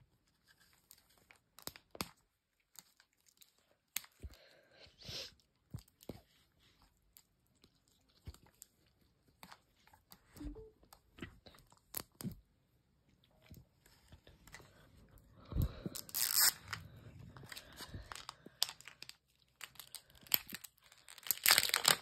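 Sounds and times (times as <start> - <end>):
plastic tearing: 15.9 - 16.8, 17.4 - 22.0
plastic seal clicking and crinkling: 17.5 - 22.0.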